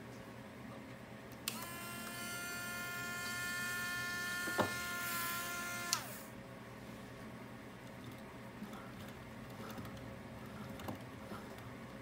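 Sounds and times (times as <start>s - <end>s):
small electric motor whining: 1.5s - 6.3s.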